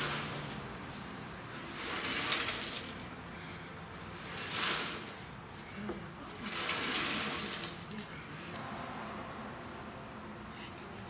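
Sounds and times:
rust flakes rattling in metal tank: 0.0s - 8.5s.

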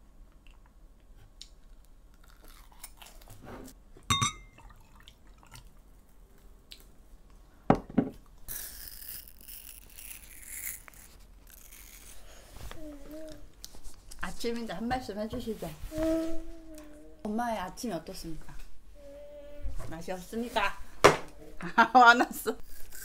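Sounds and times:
cutlery clinking on a dish: 4.1s - 4.5s.

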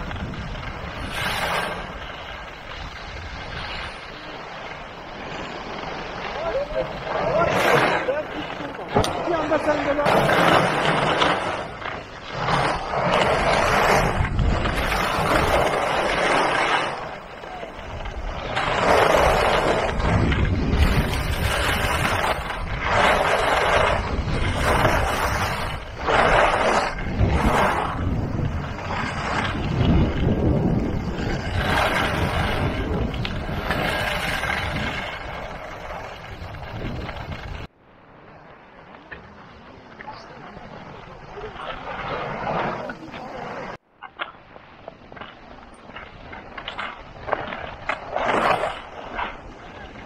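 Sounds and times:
wind rumble on microphone: 0.0s - 37.7s
skis scraping over snow: 0.0s - 50.0s.

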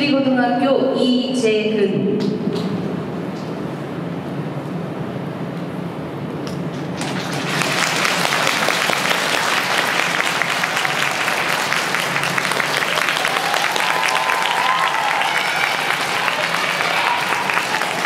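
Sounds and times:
audience applauding: 6.7s - 18.0s.

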